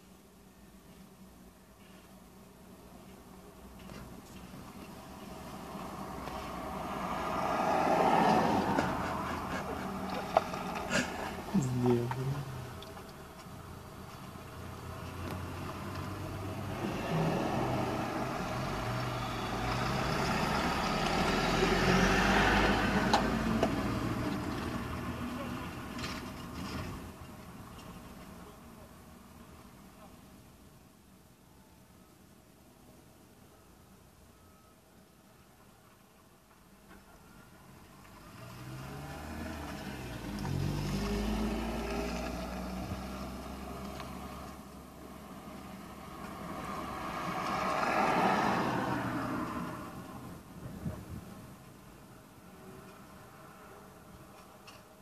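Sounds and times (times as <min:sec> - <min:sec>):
vehicles passing: 0:00.0 - 0:30.5, 0:35.4 - 0:55.0
low engine hum: 0:03.1 - 0:24.7
cars driving past: 0:03.7 - 0:28.0, 0:37.4 - 0:54.8.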